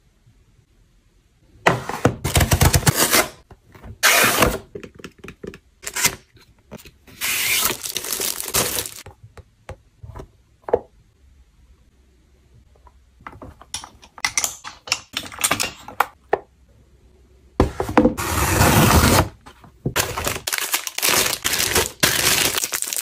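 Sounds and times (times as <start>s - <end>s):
packaging crinkling and tearing: 7.2s - 9.0s, 20.0s - 23.0s.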